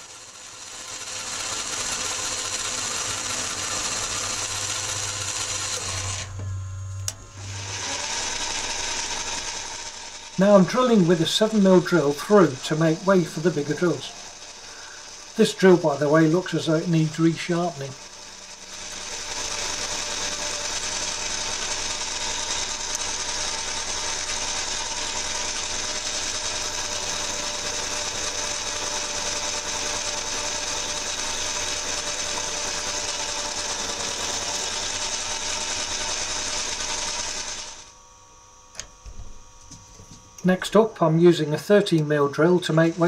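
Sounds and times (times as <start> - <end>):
lathe drilling through steel: 0.0 - 38.2, 40.2 - 43.0.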